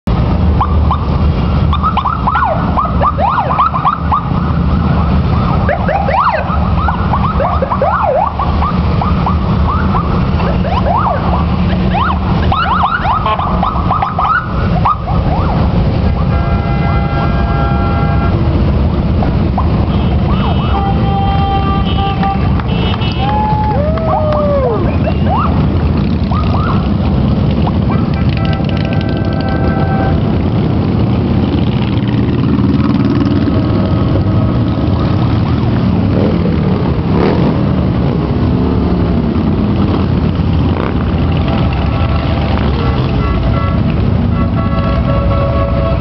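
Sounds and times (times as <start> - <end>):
motorcycle engines rumbling: 0.0 - 46.0
horn-like tone: 16.3 - 18.5, 28.4 - 30.2, 43.2 - 46.0.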